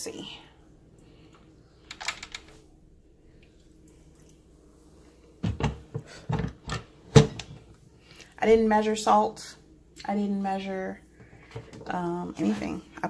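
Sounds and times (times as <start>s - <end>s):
metal clunks and knocks: 5.4s - 7.5s.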